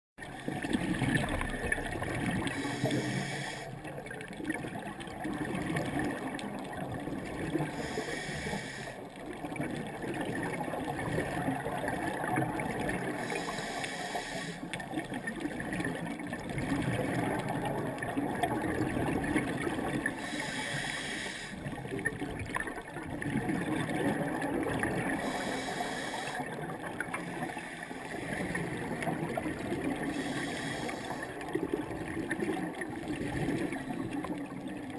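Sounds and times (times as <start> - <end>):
underwater bubbling and gurgling: 0.2 - 34.9
scuba regulator hiss: 2.6 - 3.7, 7.7 - 8.9, 13.2 - 14.7, 20.2 - 21.6, 25.2 - 26.4, 30.1 - 31.3.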